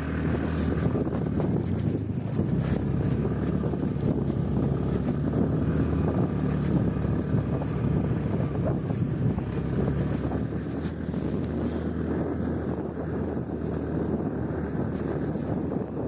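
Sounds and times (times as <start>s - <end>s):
motorbike engine running: 0.0s - 16.0s
wind noise on microphone: 0.0s - 16.0s.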